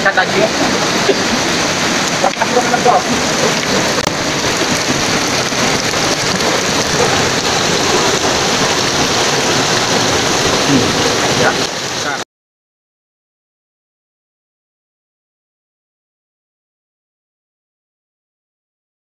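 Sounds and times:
stream water rushing over rocks: 0:00.0 - 0:12.2.

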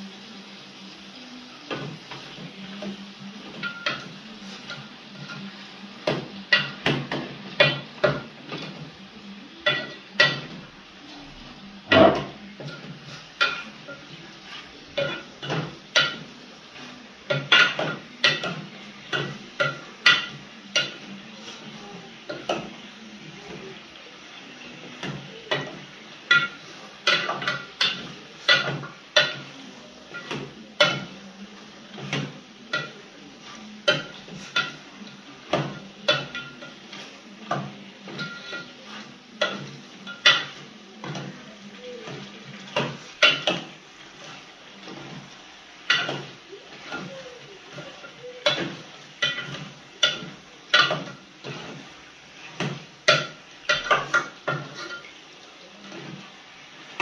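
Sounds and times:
metal spoon clanking in pot: 0:45.9 - 0:46.3.

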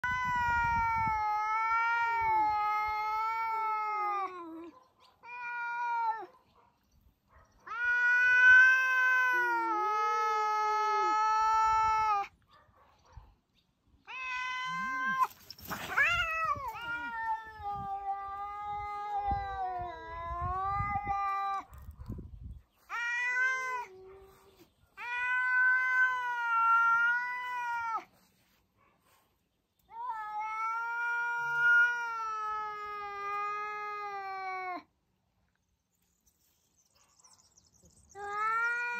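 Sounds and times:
cat yowling: 0:00.0 - 0:06.3, 0:07.6 - 0:12.3, 0:14.1 - 0:21.8, 0:25.0 - 0:28.1, 0:29.9 - 0:34.8.

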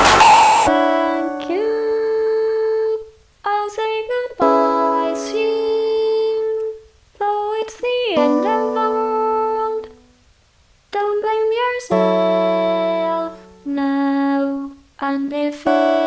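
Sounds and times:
slow background music with held notes: 0:00.4 - 0:02.9, 0:04.3 - 0:06.8, 0:08.1 - 0:10.0, 0:11.9 - 0:14.8, 0:15.6 - 0:16.0.

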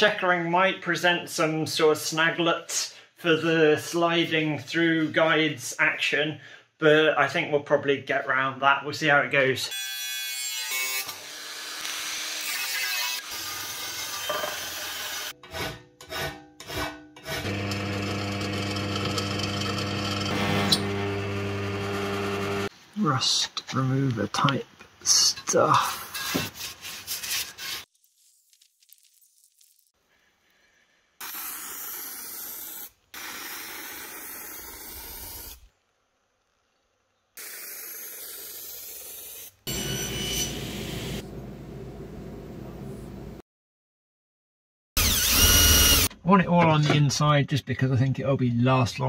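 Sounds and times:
rasping scraping strokes: 0:25.8 - 0:27.9
aerosol can spraying: 0:31.2 - 0:35.6, 0:37.4 - 0:39.6.

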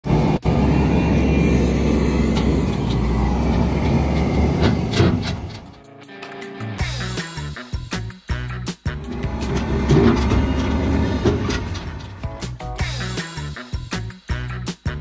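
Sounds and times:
diesel engine running: 0:00.0 - 0:05.8, 0:08.9 - 0:12.6
music: 0:05.8 - 0:15.0.

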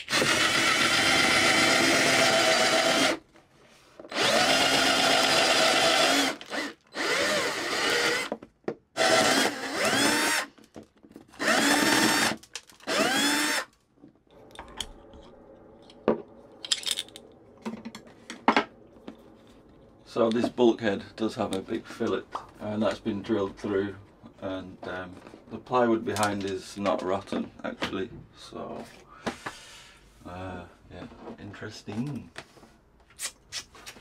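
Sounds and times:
power drill boring through wood: 0:00.0 - 0:03.2, 0:04.1 - 0:08.4, 0:09.0 - 0:10.6, 0:11.4 - 0:13.8.

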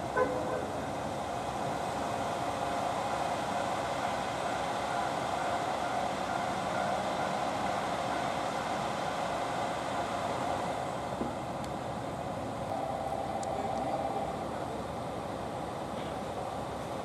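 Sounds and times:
diesel railcar engine humming: 0:00.0 - 0:17.0.

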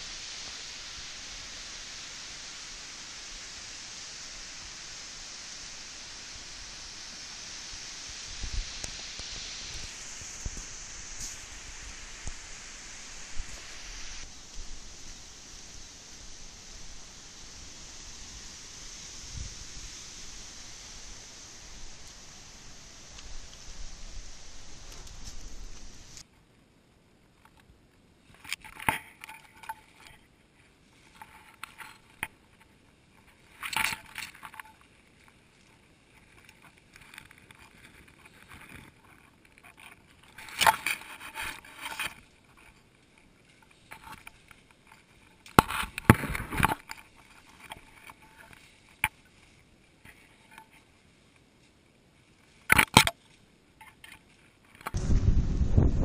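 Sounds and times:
wind rumble on microphone: 0:00.0 - 0:26.2, 0:54.8 - 0:56.0
undergrowth rustling against camera: 0:00.0 - 0:26.6, 0:27.3 - 0:56.0.

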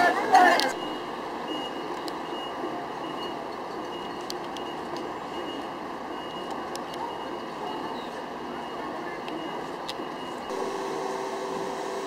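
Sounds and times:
faint high beeping tone: 0:00.8 - 0:10.6
boat engine: 0:07.0 - 0:12.0.

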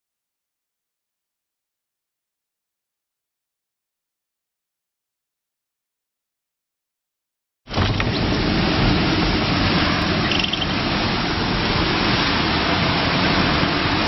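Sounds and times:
storm wind and rain: 0:07.7 - 0:14.0.

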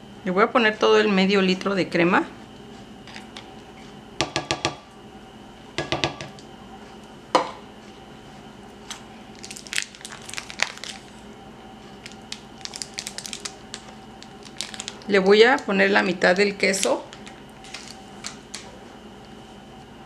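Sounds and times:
foil wrapper crinkling: 0:09.3 - 0:11.3, 0:11.9 - 0:15.8, 0:16.4 - 0:18.6.

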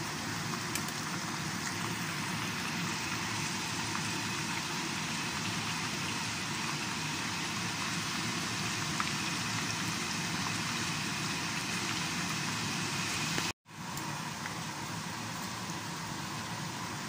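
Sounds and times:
chicken frying in hot oil: 0:00.0 - 0:17.0.

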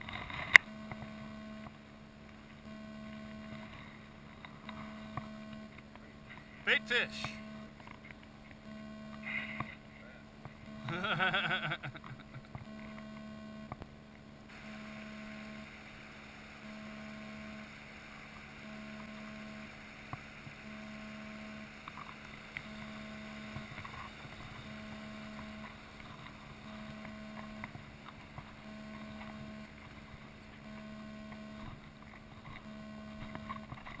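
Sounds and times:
small clicks: 0:00.0 - 0:06.5, 0:30.6 - 0:34.0
pulsing low hum: 0:00.0 - 0:34.0.

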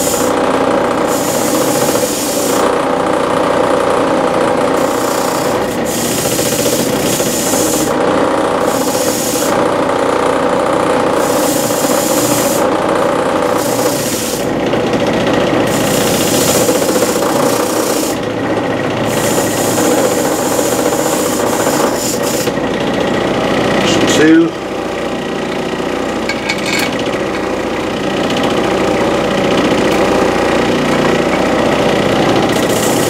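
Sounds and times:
rough scraping of bolts: 0:25.5 - 0:27.0.

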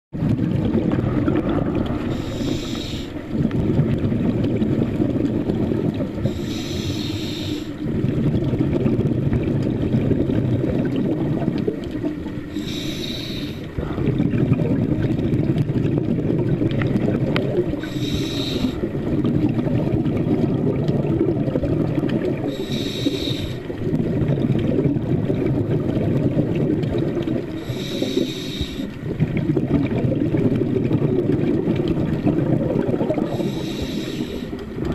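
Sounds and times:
rumbling exhalation bubbles: 0:00.2 - 0:34.9
regulator hissing inhalations: 0:02.1 - 0:03.2, 0:06.2 - 0:07.8, 0:12.5 - 0:13.7, 0:17.8 - 0:18.8, 0:22.5 - 0:23.7, 0:27.5 - 0:29.0, 0:33.2 - 0:34.7.

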